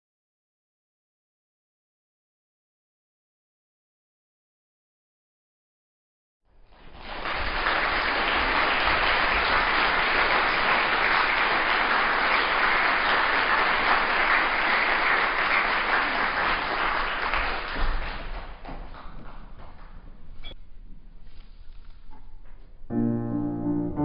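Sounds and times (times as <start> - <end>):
audience applauding: 6.6 - 20.1.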